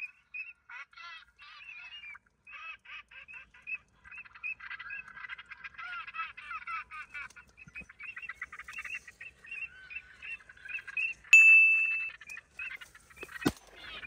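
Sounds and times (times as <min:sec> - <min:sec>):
waterfowl calling: 0:00.0 - 0:14.0
loud clear ding: 0:11.4 - 0:12.1.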